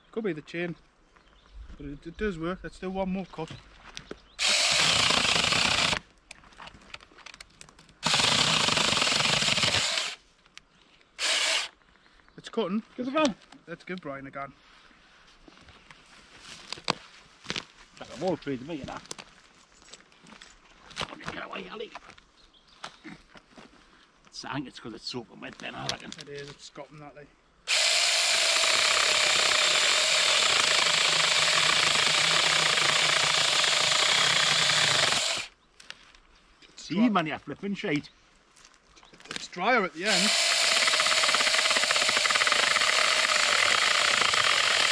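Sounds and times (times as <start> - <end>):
chainsaw cutting wet branch: 4.4 - 6.1, 8.0 - 10.2, 11.2 - 11.7, 27.7 - 35.5, 40.0 - 44.9.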